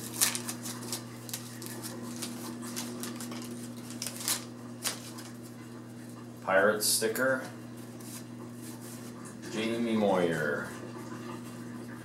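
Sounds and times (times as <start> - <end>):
wax paper wrapper crinkling: 0.0 - 5.7.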